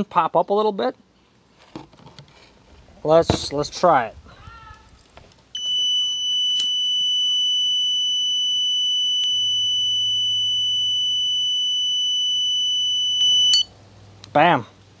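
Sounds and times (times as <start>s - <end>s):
high-pitched multimeter beep: 5.6s - 13.7s.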